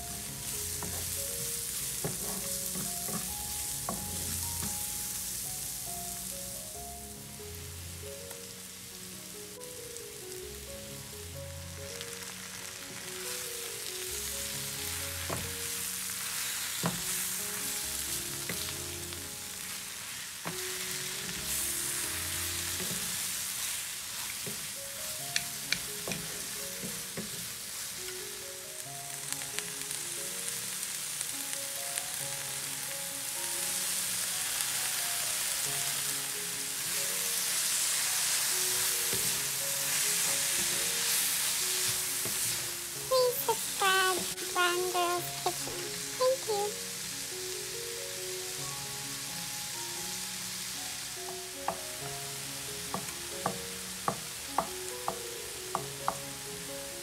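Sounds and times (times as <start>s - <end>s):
soft background music: 0.0s - 57.0s
vegetables sizzling in frying pan: 0.0s - 57.0s
spatula stirring in pan: 0.1s - 4.9s, 19.6s - 24.8s, 36.9s - 44.6s.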